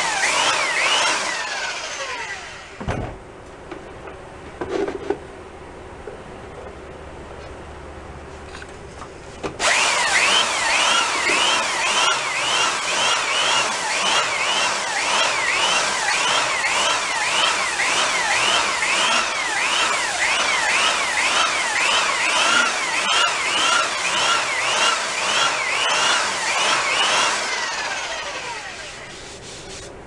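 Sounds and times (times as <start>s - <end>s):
belt sander grinding wood: 0.0s - 2.8s, 9.6s - 29.5s.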